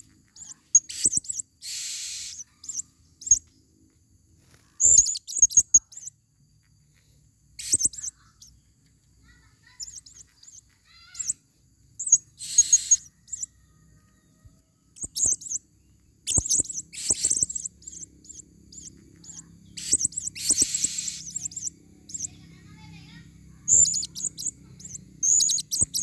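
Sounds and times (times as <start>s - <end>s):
harsh buzzy parrot call: 0.0s - 3.4s, 4.6s - 6.1s, 7.6s - 8.6s, 9.3s - 11.4s, 12.0s - 13.6s, 16.2s - 22.9s, 23.5s - 26.0s
parrots chirping: 0.0s - 3.5s, 4.7s - 6.1s, 7.6s - 8.6s, 9.3s - 11.4s, 12.0s - 13.7s, 15.0s - 15.6s, 16.2s - 26.0s.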